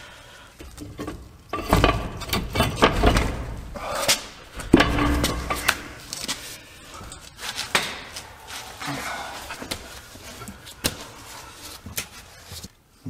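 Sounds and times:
metal clanks and knocks: 0.6s - 8.2s.

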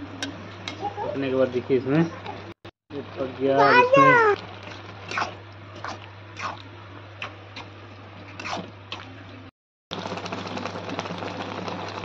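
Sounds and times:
thick mixture bubbling: 0.1s - 12.0s
crackle: 9.9s - 12.0s.

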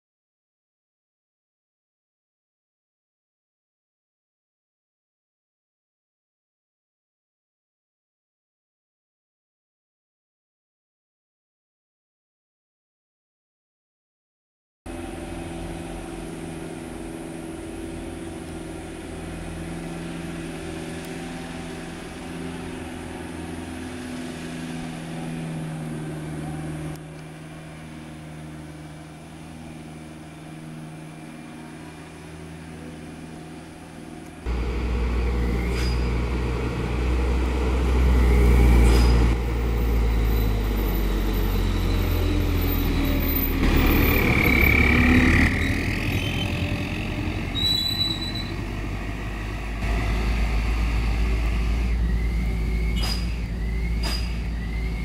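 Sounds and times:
diesel engines pulling uphill: 14.9s - 55.0s.

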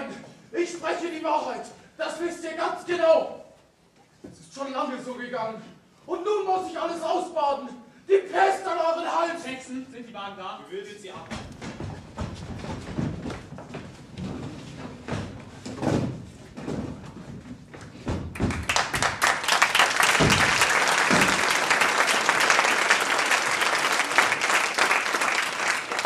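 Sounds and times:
footsteps on wooden stage: 11.2s - 19.2s, 20.1s - 21.6s
audience applause: 18.4s - 26.0s.

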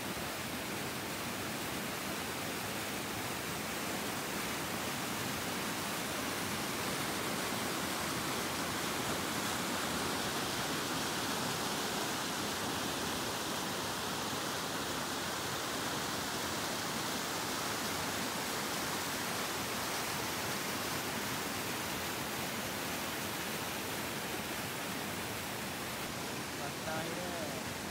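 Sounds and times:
stream rushing over boulders: 0.0s - 27.9s.

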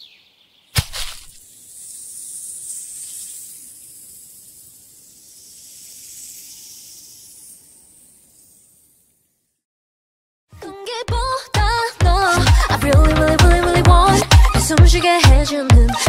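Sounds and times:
high airy hiss: 1.2s - 9.4s.

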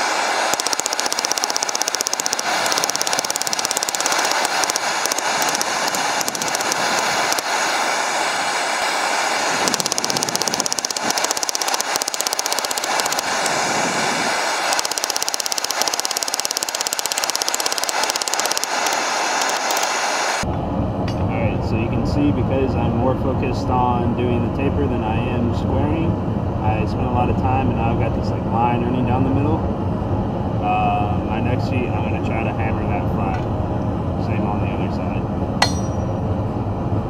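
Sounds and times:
hammer striking hot steel: 0.3s - 7.7s, 35.6s - 36.2s.

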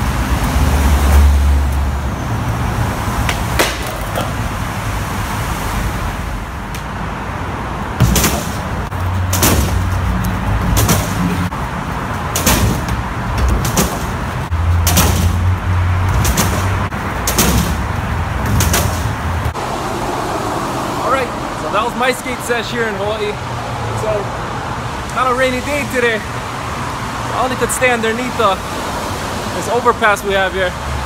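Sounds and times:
traffic rumble: 0.0s - 31.0s
skateboard clacking on concrete: 3.3s - 4.3s.

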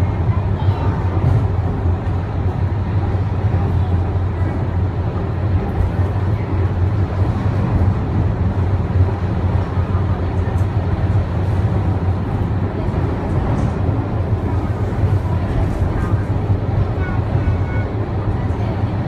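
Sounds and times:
suspension railway car rumble: 0.0s - 19.0s.

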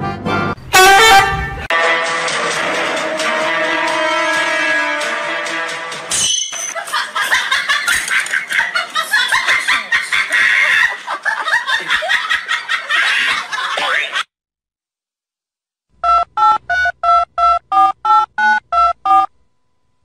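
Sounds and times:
laughter: 6.8s - 14.2s.

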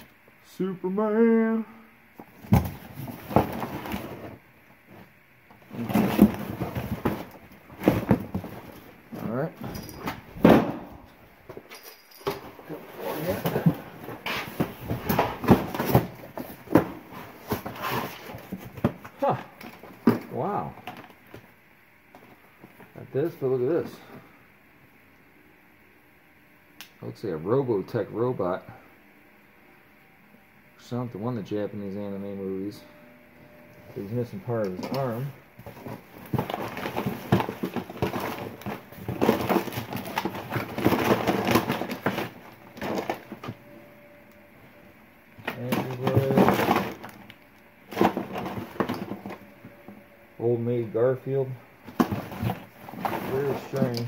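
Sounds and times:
knocks and clunks of objects handled: 2.2s - 21.5s, 34.6s - 43.7s, 45.4s - 50.0s, 51.8s - 54.0s.

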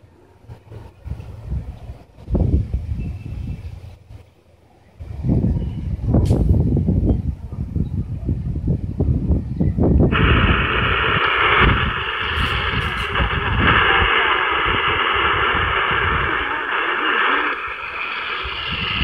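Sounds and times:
hissy shortwave radio static: 0.0s - 2.3s, 10.1s - 19.0s
faint steady whistle: 2.8s - 6.1s, 9.5s - 19.0s.

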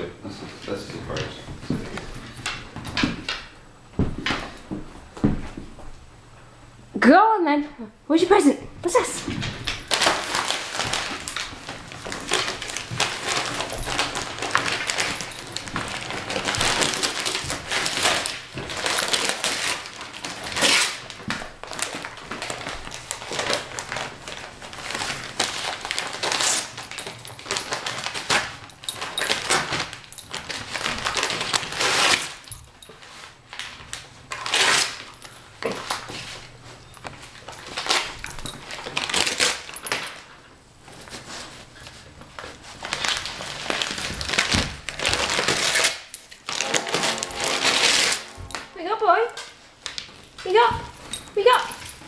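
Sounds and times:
dog ripping foil wrapping paper: 9.4s - 40.4s, 41.0s - 52.0s.

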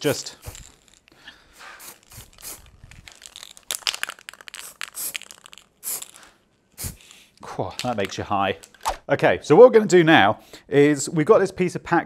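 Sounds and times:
aerosol spray can hissing: 0.3s - 3.5s, 4.4s - 7.2s.

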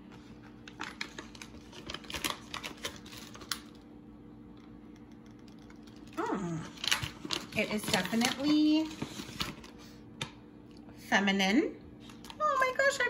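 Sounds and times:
faint steady hum: 0.0s - 13.0s
paper bag crinkling: 0.6s - 3.8s.

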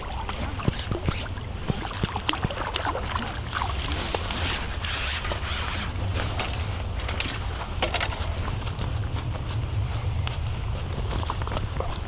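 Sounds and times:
steady low rumble: 0.0s - 12.0s
fishing pole sliding through hands: 0.2s - 1.8s, 3.7s - 8.8s.

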